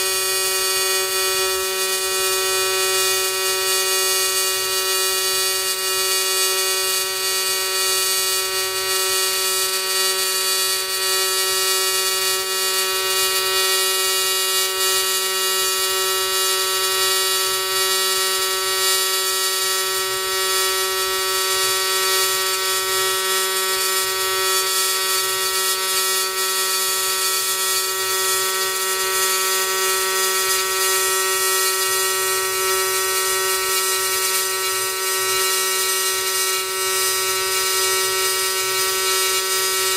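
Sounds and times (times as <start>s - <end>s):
welding arc buzzing: 0.0s - 39.9s.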